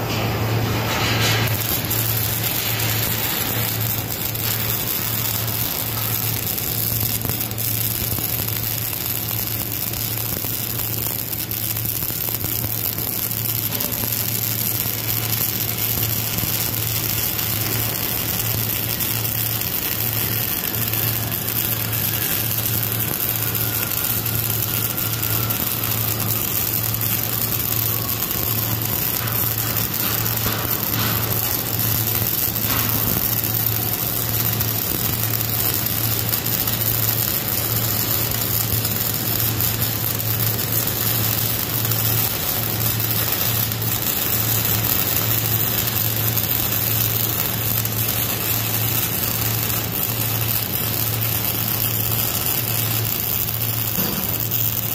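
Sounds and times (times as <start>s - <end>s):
welding arc crackling hiss: 0.0s - 54.9s.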